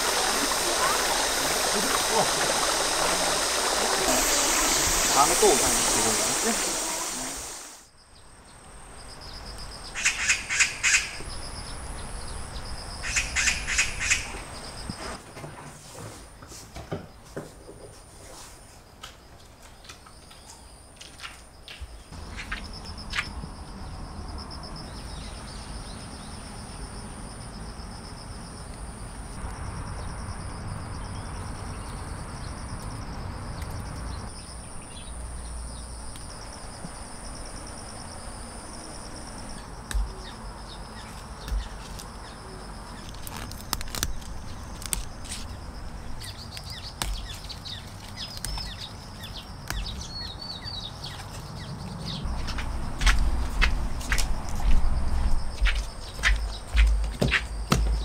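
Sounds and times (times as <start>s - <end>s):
birds chirping: 0.0s - 7.8s
high-pitched insect drone: 0.0s - 7.8s.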